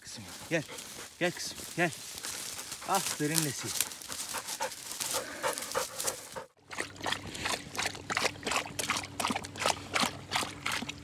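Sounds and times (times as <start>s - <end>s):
dog panting: 0.1s - 1.6s, 2.2s - 6.6s
dog lapping water: 5.4s - 11.0s.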